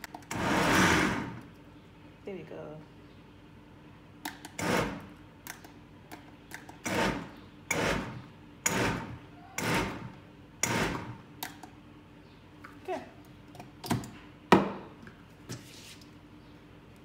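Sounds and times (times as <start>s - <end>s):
blender pulsing: 0.3s - 1.4s, 8.7s - 11.1s.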